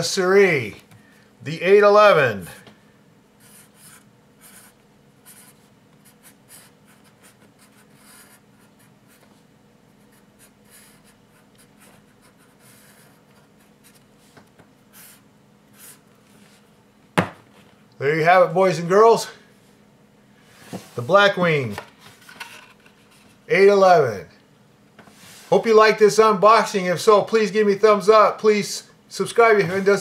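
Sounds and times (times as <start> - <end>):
pencil scratching on paper: 3.4 - 9.4, 10.0 - 14.0.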